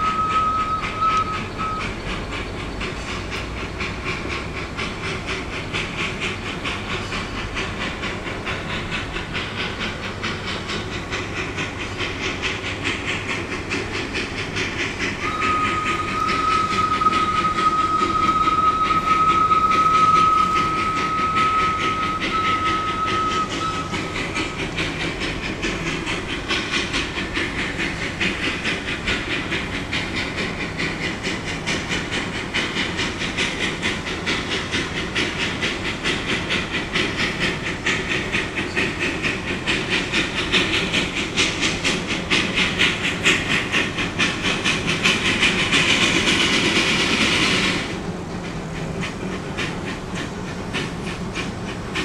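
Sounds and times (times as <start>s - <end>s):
steam hissing: 0.0s - 52.0s
steam locomotive chuffing: 0.0s - 52.0s
steam whistle long note: 15.2s - 23.9s.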